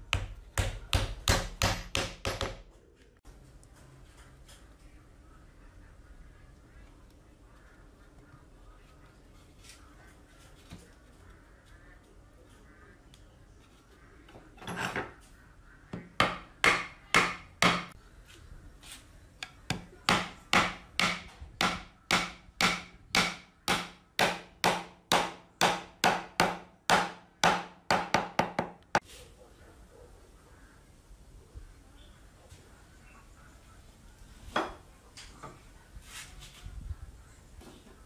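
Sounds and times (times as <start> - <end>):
hammer driving nails into wood: 0.2 - 2.6, 19.7 - 28.8.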